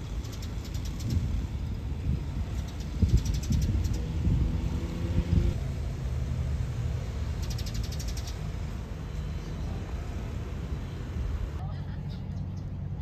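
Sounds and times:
low outdoor rumble: 0:00.0 - 0:13.0
quick high chirping: 0:07.4 - 0:08.5.

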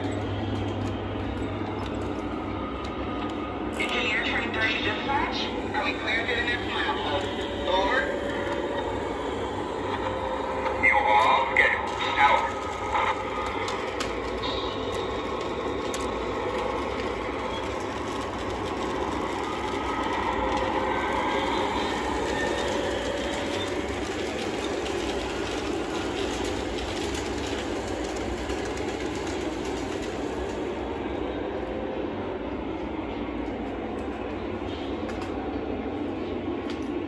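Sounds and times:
model trains rumbling and whirring: 0:00.0 - 0:37.0.

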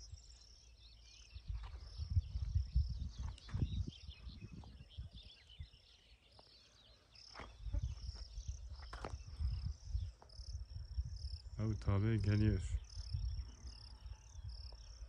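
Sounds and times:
birds chirping: 0:00.0 - 0:15.0
wind buffeting microphone: 0:01.3 - 0:06.0, 0:07.5 - 0:15.0
insects chirring: 0:06.0 - 0:15.0.

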